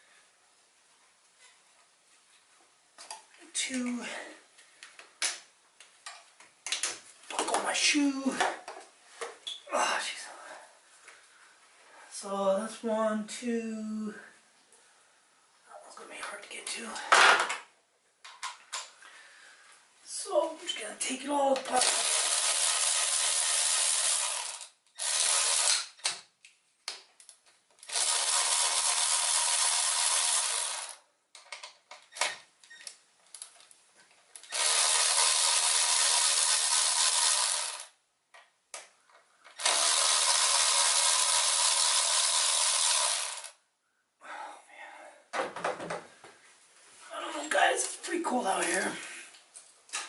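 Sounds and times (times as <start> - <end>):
power ratchet spinning: 21.7 - 26.1, 27.8 - 31.0, 34.5 - 37.9, 39.6 - 43.6.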